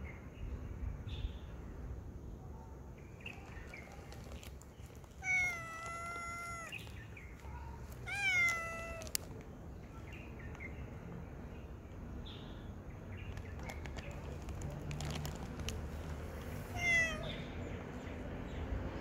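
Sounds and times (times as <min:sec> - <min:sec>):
cat meowing: 0:05.2 - 0:06.9, 0:08.0 - 0:09.3, 0:16.6 - 0:17.5.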